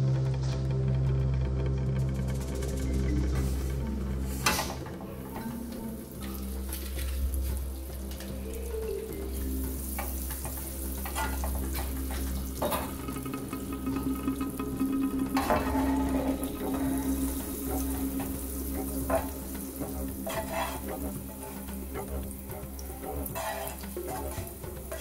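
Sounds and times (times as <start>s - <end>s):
butter sizzling in frying pan: 5.2s - 25.0s
spatula clicking and scraping pan: 9.9s - 25.0s.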